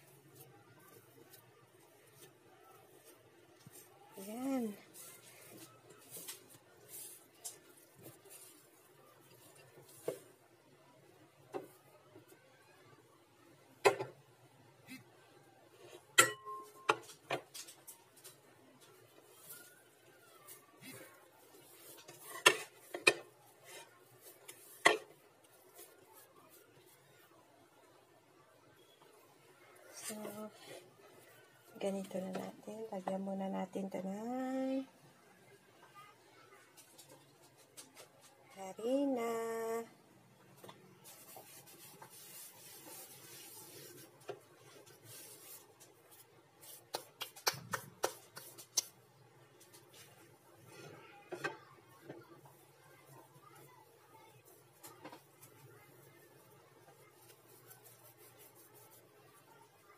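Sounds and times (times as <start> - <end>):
hand brushing flour on wood: 0.0 - 10.4, 41.0 - 49.0, 54.4 - 59.8
dough rubbing and handling: 0.0 - 59.9.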